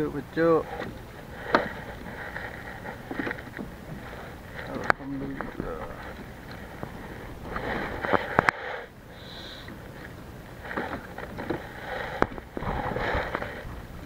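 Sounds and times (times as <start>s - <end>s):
rustling on plastic kayak: 0.5s - 14.0s.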